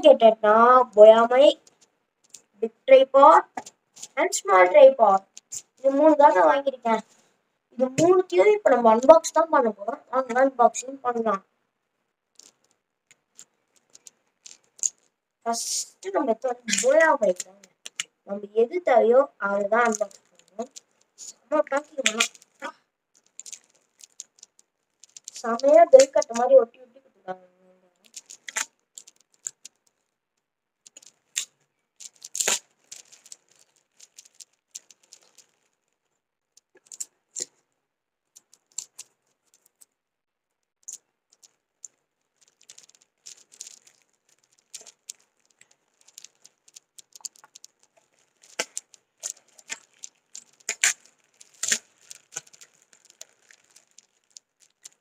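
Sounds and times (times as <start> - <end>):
parcel packaging tearing and crinkling: 13.3 - 15.1, 16.0 - 18.2, 19.8 - 26.5, 28.0 - 30.0, 30.9 - 35.9, 36.6 - 37.5, 38.4 - 39.8, 40.8 - 55.0.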